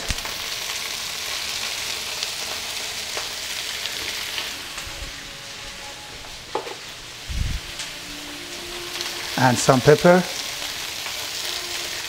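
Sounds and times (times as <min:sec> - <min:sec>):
zucchini sizzling in oil: 0:00.0 - 0:12.0.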